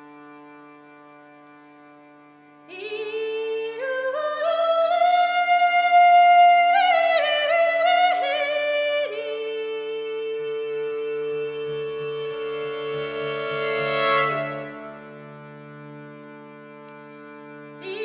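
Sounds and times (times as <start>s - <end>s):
harmonium drone chord: 10.0s - 18.0s
folk melody line: 10.9s - 18.0s.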